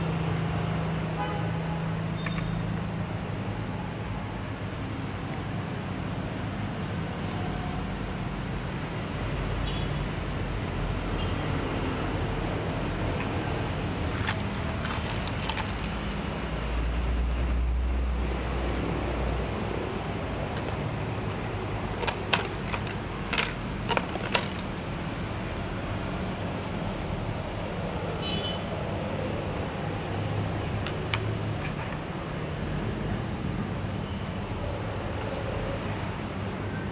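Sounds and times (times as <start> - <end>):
plastic toy pieces clacking: 13.2 - 16.2, 20.5 - 21.0, 21.8 - 24.8.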